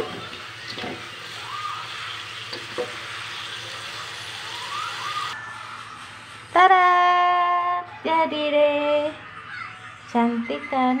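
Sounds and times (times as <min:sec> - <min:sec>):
fish sizzling in a wok: 0:00.0 - 0:05.4.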